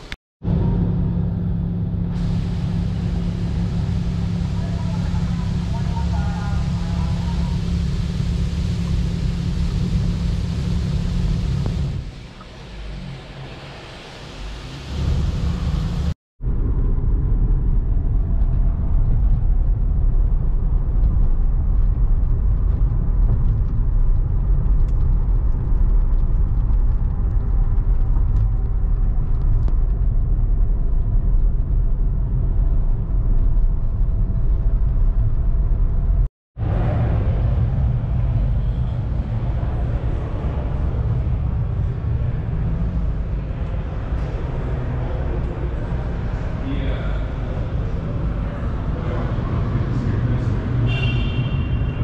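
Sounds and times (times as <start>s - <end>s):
car engine and road rumble: 0.0s - 52.0s
hiss: 2.2s - 4.8s.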